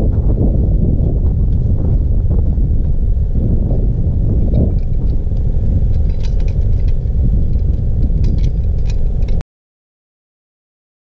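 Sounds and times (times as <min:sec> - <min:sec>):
wind buffeting microphone: 0:00.0 - 0:09.4
gear clicking and rattling: 0:04.3 - 0:09.4.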